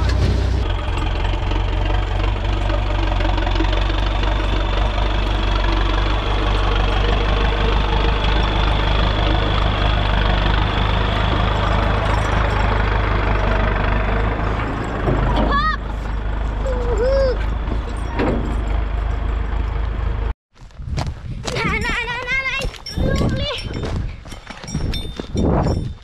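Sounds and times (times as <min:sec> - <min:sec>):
tractor diesel engine running: 0:00.0 - 0:20.3.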